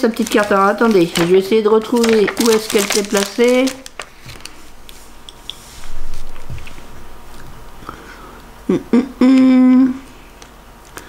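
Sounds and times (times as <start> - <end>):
rustling and handling noises: 0.0 - 7.9.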